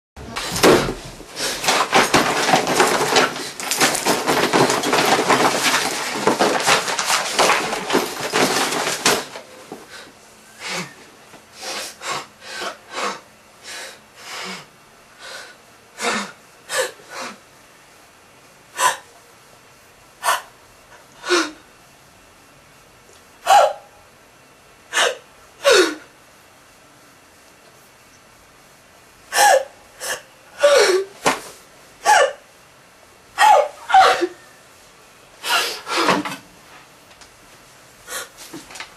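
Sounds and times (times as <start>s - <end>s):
dense rustling: 0.2s - 9.8s
person sniffing and gasping: 9.9s - 11.0s, 11.6s - 17.4s, 35.4s - 36.2s, 38.1s - 38.5s.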